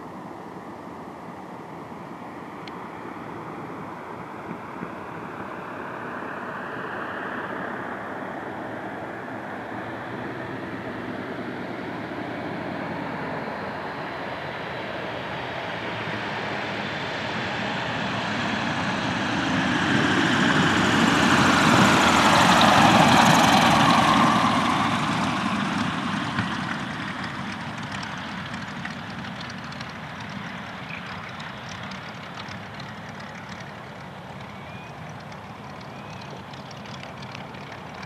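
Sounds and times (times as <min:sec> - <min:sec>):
biplane radial engine passing: 0:00.0 - 0:38.0.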